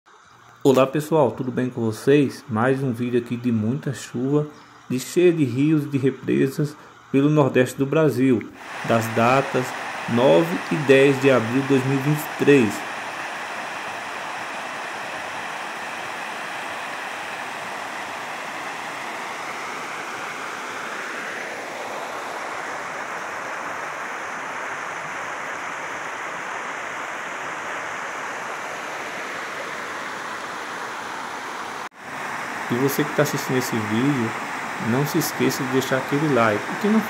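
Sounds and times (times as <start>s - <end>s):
floodwater rushing over rocks: 8.6s - 37.0s.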